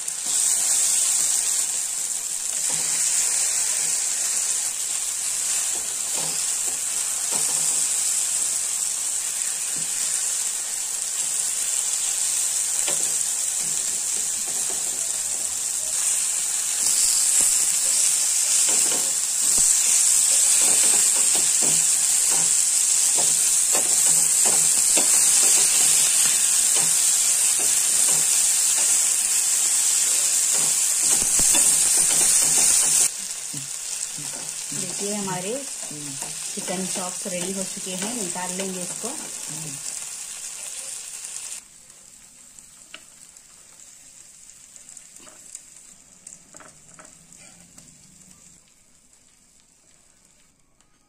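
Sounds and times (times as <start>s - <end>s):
chicken sizzling in oil: 0.0s - 50.5s
spatula scraping and tapping griddle: 2.6s - 4.2s, 5.5s - 8.5s, 12.8s - 15.6s, 16.8s - 29.2s, 29.8s - 33.1s.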